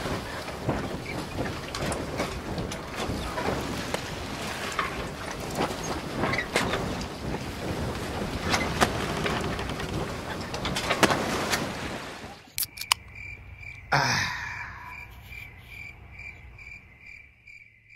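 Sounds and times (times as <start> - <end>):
wind buffeting microphone: 0.0 - 12.2
crickets chirping: 12.4 - 17.9.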